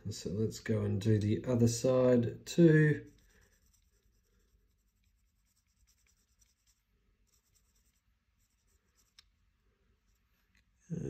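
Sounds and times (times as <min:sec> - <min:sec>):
marker scratching on metal: 0:02.9 - 0:09.4.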